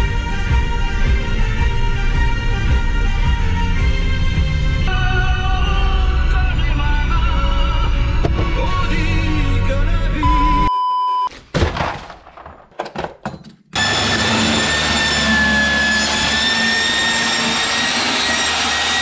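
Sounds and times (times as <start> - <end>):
test tone beep: 10.2 - 11.3
circular saw cutting cardboard: 13.8 - 19.0.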